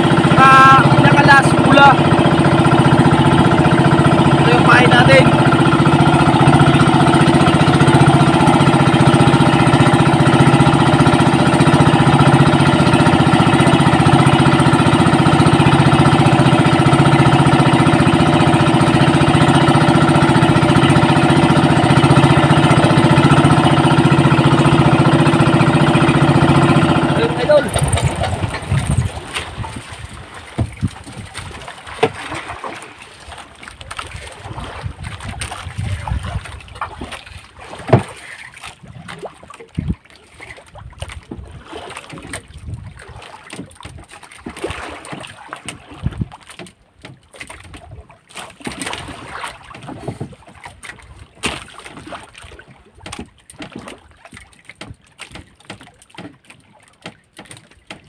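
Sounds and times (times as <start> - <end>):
water splashing against boat hull: 0.0 - 58.0
wind buffeting microphone: 27.4 - 31.7, 34.4 - 37.2, 39.7 - 40.0, 42.5 - 43.1
knocks and thumps: 27.7 - 29.8, 30.5 - 32.3.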